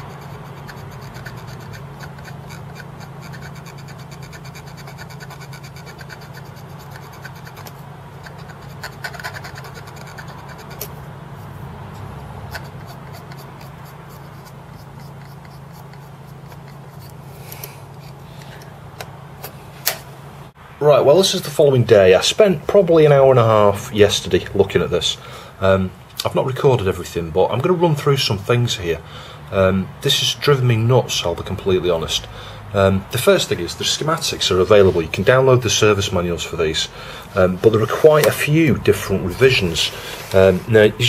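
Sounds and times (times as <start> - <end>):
swab scraping drive head: 0.0 - 20.1, 30.0 - 41.0
low steady hum: 0.0 - 41.0.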